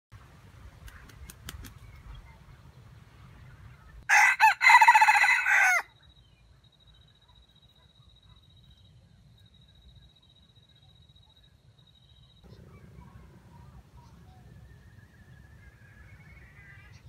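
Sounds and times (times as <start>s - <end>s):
rooster crowing: 4.1s - 5.9s.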